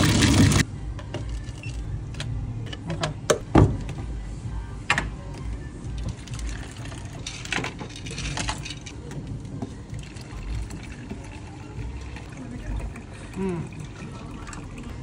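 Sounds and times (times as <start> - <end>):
drinks splashing over ice: 9.8 - 15.0
ice clinking: 9.8 - 15.0.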